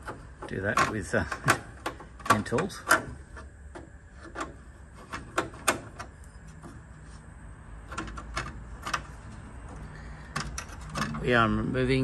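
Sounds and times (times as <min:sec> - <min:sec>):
screwdriver clicking and scraping on metal: 0:00.0 - 0:06.8, 0:10.3 - 0:11.3.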